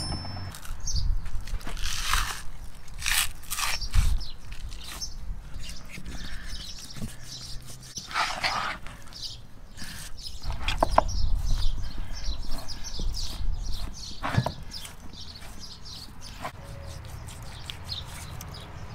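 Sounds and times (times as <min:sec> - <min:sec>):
knife slicing raw meat: 0:12.5 - 0:18.6.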